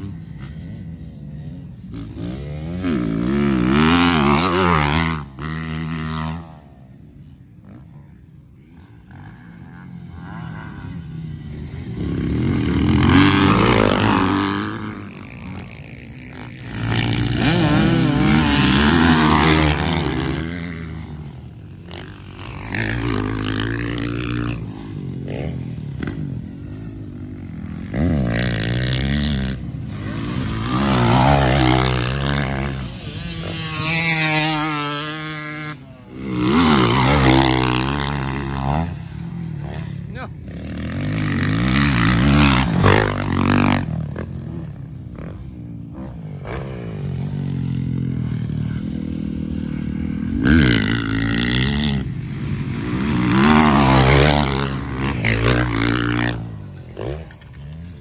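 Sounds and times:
dirt bike engines revving: 0.0s - 58.0s.

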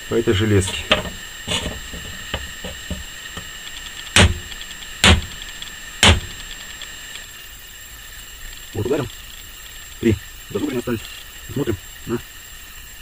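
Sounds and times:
knife striking iron: 0.6s - 3.5s, 4.1s - 5.4s, 6.0s - 6.5s.

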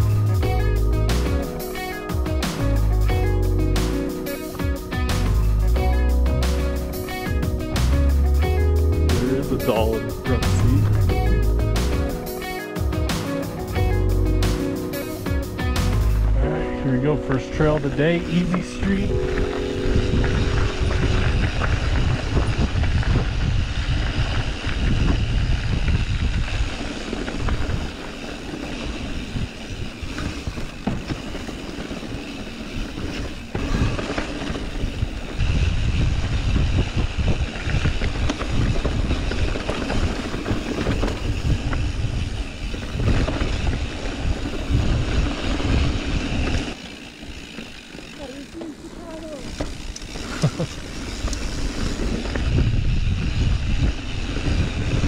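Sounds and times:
heavy low rumble: 0.0s - 1.5s, 4.6s - 12.2s, 15.4s - 26.7s
bike clicks and rattles: 0.0s - 16.4s, 17.3s - 55.0s
bike tyres crunching on dirt: 0.0s - 55.0s.

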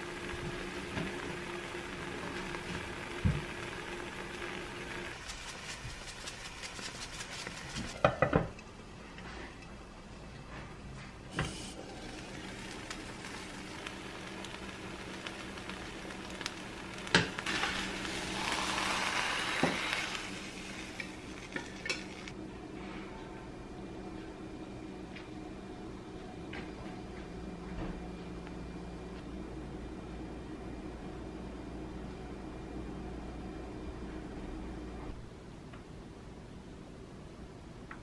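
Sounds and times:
eggs sizzling in a frying pan: 0.0s - 8.7s, 11.3s - 22.4s.

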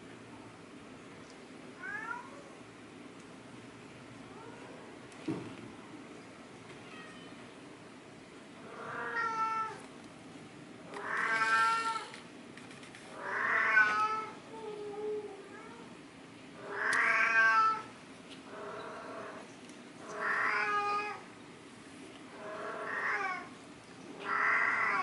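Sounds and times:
cat meowing: 1.8s - 2.5s, 8.8s - 9.8s, 11.0s - 12.2s, 13.2s - 14.4s, 16.6s - 17.9s, 20.1s - 21.3s, 22.4s - 23.5s, 24.2s - 25.0s.

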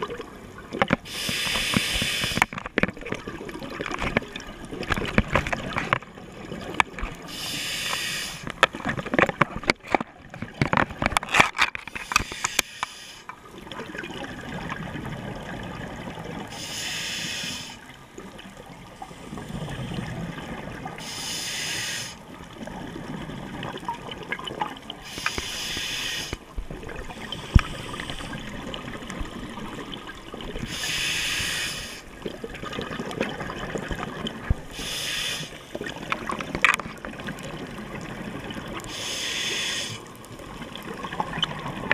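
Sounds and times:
sharp clicks and knocks: 8.4s - 13.4s
diver exhaling bubbles: 22.6s - 36.4s.

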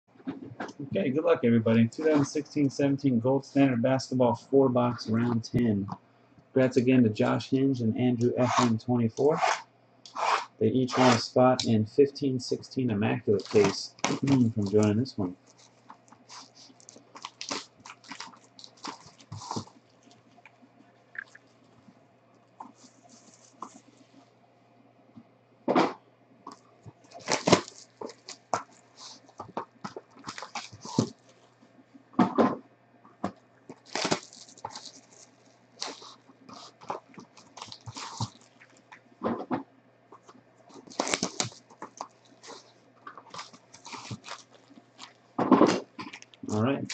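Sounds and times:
plastic wrapping crinkling: 13.3s - 24.2s, 26.5s - 31.8s, 33.6s - 39.1s, 40.2s - 46.9s.

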